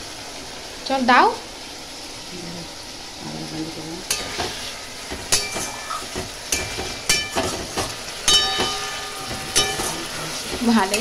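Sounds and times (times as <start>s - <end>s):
food sizzling in oil: 0.0s - 11.0s
spatula clanging on pan: 4.1s - 11.0s.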